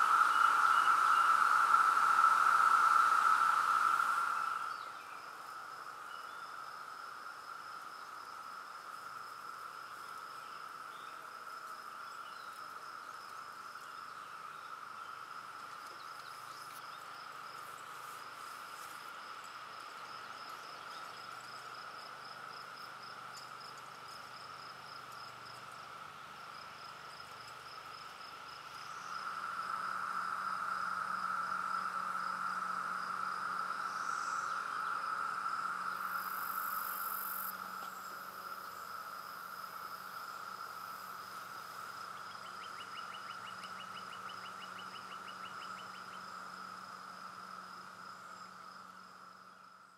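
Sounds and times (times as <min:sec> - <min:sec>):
cicadas droning: 0:00.0 - 0:49.9.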